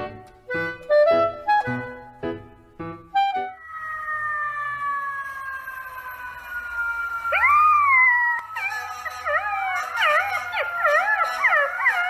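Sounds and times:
long falling tone: 0:03.2 - 0:12.0
puppy howling: 0:07.1 - 0:12.0.

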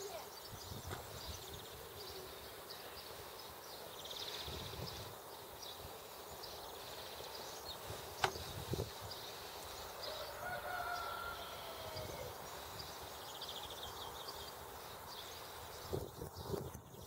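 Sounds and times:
small birds chirping: 0:00.0 - 0:17.0
distant rooster crowing: 0:09.9 - 0:12.6.

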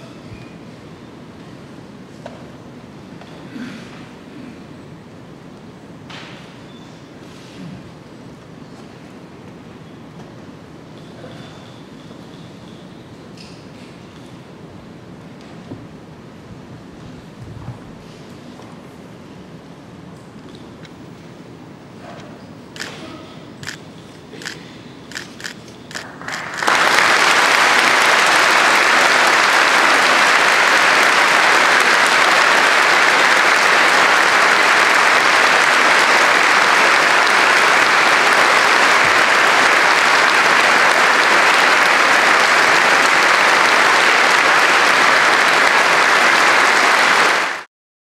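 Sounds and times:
crowd applauding: 0:24.4 - 0:47.7.

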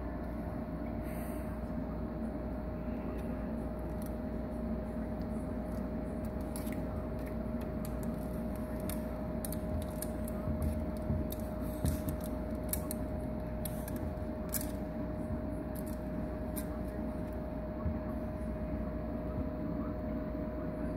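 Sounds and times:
water filter hum: 0:00.0 - 0:20.9
claws clicking on rock: 0:05.2 - 0:14.9.

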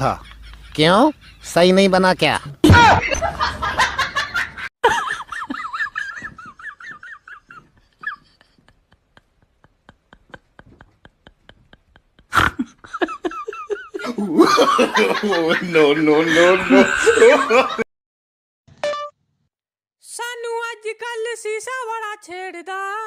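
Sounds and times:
woman laughing: 0:02.6 - 0:15.5.

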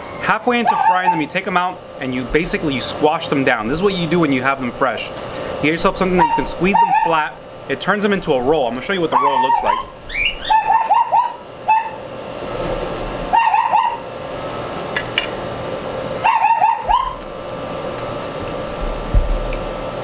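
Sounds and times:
ceiling fan whirring: 0:00.0 - 0:20.0
animal yipping: 0:00.6 - 0:01.3, 0:06.2 - 0:07.2, 0:09.1 - 0:12.0, 0:13.3 - 0:14.0, 0:16.2 - 0:17.2.

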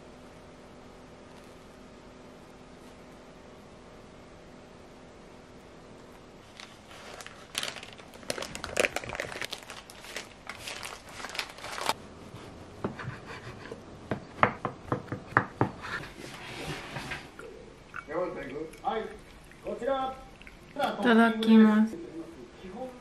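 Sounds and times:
baking paper crinkling: 0:06.4 - 0:12.0.

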